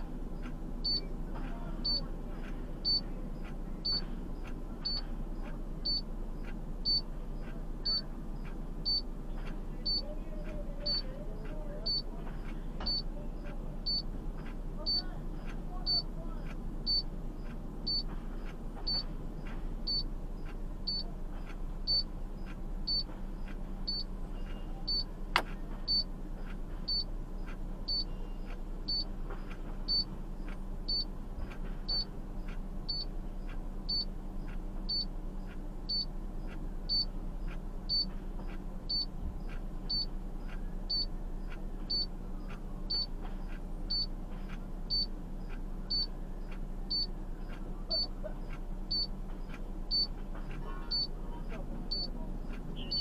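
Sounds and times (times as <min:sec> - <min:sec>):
high electronic beeps: 0:02.8 - 0:03.0, 0:07.8 - 0:08.0, 0:09.9 - 0:10.1, 0:11.9 - 0:12.1, 0:12.9 - 0:13.1, 0:13.9 - 0:14.1, 0:15.9 - 0:16.1, 0:16.9 - 0:17.1, 0:19.9 - 0:20.1, 0:20.9 - 0:21.1, 0:21.9 - 0:22.1, 0:22.9 - 0:23.1, 0:23.9 - 0:25.1, 0:25.9 - 0:26.1, 0:26.9 - 0:27.1, 0:27.9 - 0:29.1, 0:29.9 - 0:30.1, 0:30.9 - 0:31.1, 0:31.9 - 0:32.1, 0:38.9 - 0:39.1, 0:39.9 - 0:40.1, 0:40.9 - 0:41.1, 0:41.9 - 0:42.1, 0:45.9 - 0:46.1, 0:46.9 - 0:47.1, 0:47.9 - 0:48.1, 0:48.9 - 0:49.1, 0:49.9 - 0:50.1, 0:50.9 - 0:51.1, 0:51.9 - 0:52.1, 0:52.8 - 0:53.0.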